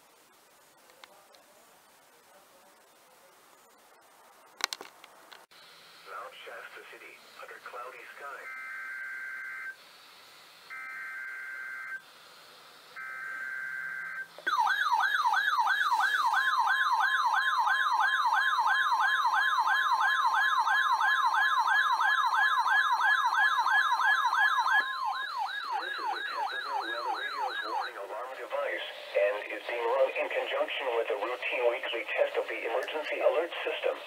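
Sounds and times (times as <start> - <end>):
alert siren falling sweeps: 8.2 - 9.8, 10.7 - 12.0, 13.0 - 30.1.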